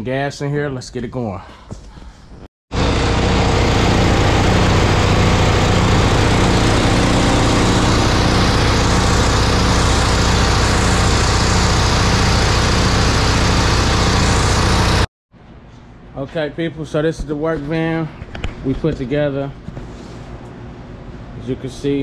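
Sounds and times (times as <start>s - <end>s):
air compressor engine running: 2.7s - 15.1s.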